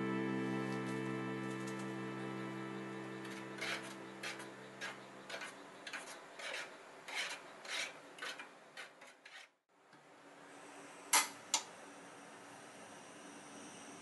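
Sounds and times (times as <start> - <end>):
spoon scraping a metal bowl: 3.2 - 9.6.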